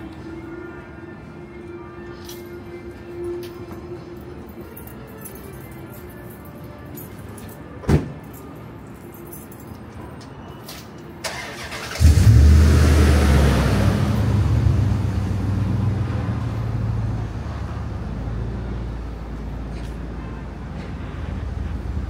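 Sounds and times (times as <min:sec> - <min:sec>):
vehicle engine starting and rumbling: 0:11.2 - 0:18.9.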